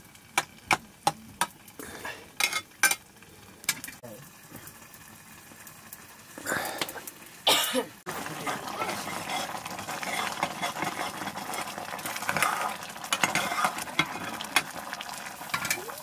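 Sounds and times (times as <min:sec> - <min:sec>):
metal spoon scraping a pot: 0:02.4 - 0:03.0, 0:08.3 - 0:14.7
person coughing: 0:07.5 - 0:08.0.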